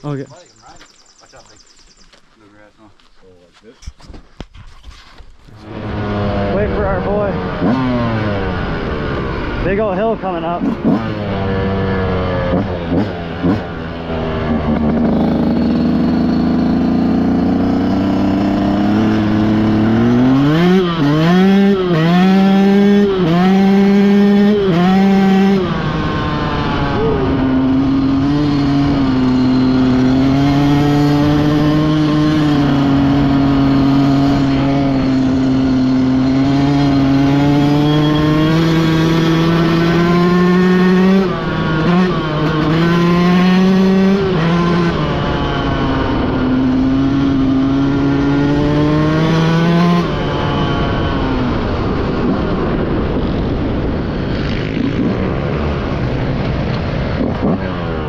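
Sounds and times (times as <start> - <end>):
dirt bike engine revving: 5.5 - 58.0.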